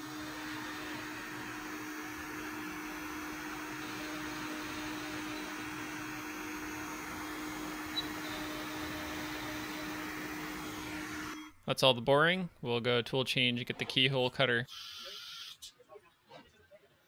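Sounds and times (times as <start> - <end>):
router spindle humming: 0.0 - 11.6.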